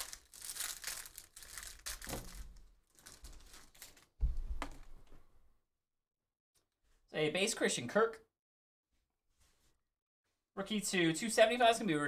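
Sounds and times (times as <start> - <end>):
foil wrapper crinkling and tearing: 0.0 - 4.1
low thump: 4.2 - 4.8.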